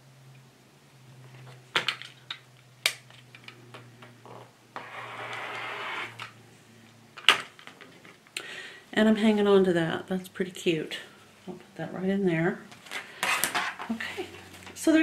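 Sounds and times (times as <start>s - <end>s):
rotary cutter slicing fabric: 4.8s - 6.3s.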